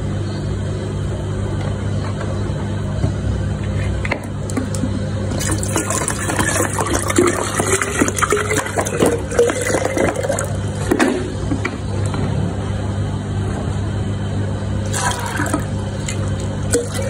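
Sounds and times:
steady low hum: 0.0s - 17.0s
drink pouring into container: 5.3s - 10.6s, 14.8s - 17.0s.

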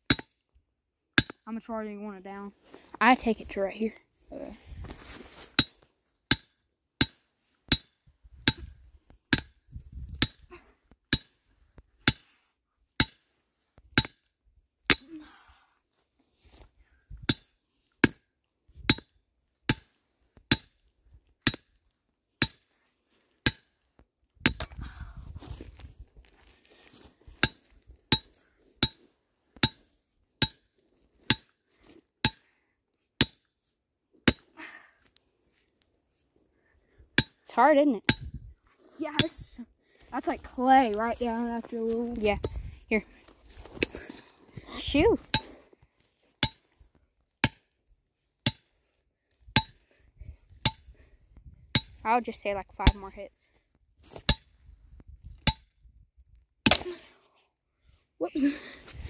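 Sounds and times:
hammer striking metal stake: 0.0s - 0.4s, 1.1s - 1.4s, 5.6s - 10.5s, 11.1s - 11.4s, 12.0s - 12.3s, 13.0s - 13.3s, 13.9s - 14.3s, 17.2s - 20.8s, 21.4s - 21.8s, 22.4s - 22.7s, 23.4s - 24.7s, 27.4s - 29.0s, 29.6s - 31.6s, 32.2s - 32.4s, 33.2s - 33.5s, 34.3s - 34.5s, 37.2s - 37.4s, 38.1s - 38.4s, 46.4s - 46.7s, 47.4s - 47.8s, 48.4s - 48.7s, 49.6s - 49.8s, 50.6s - 50.9s, 51.7s - 52.0s, 54.2s - 54.6s, 55.4s - 55.7s, 56.6s - 56.9s.

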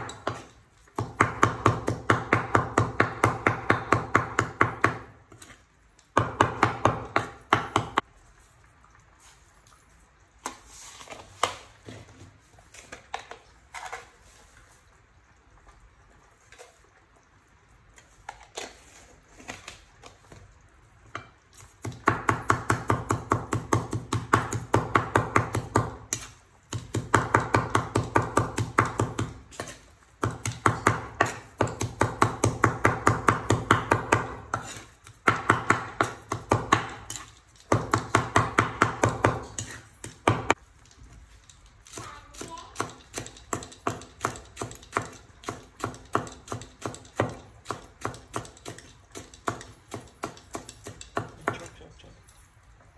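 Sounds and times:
cleaver chopping on wooden board: 21.8s - 40.6s.

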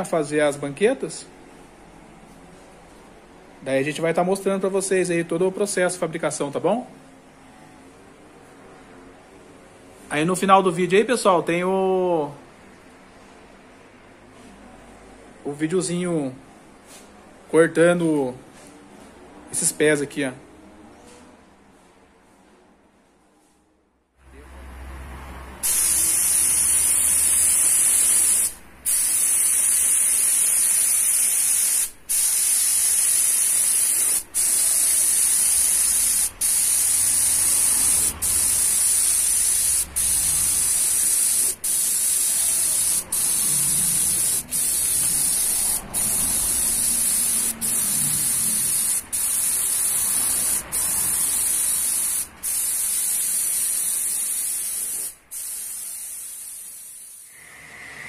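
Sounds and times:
spray gun hissing: 25.6s - 57.5s.

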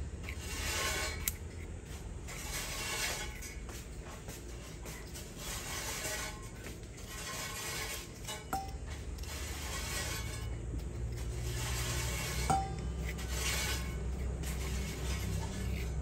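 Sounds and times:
metal utensil scraping ginger: 0.0s - 16.0s.

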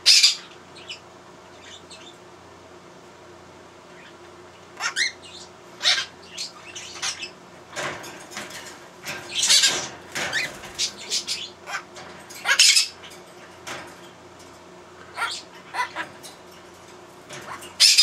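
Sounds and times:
parrot squawking harsh calls: 4.8s - 7.3s, 11.1s - 13.0s, 15.1s - 16.2s.

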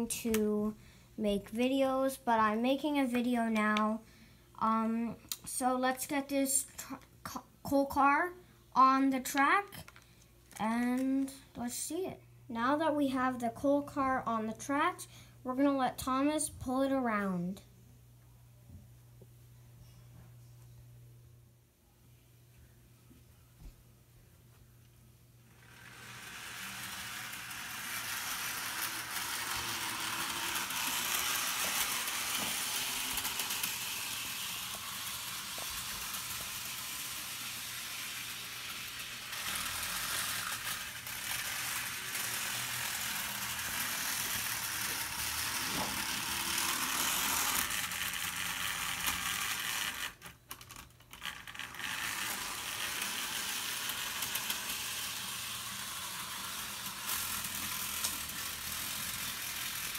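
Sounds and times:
model train motor whirring: 25.5s - 59.9s
wheels running on rails: 25.5s - 59.9s.

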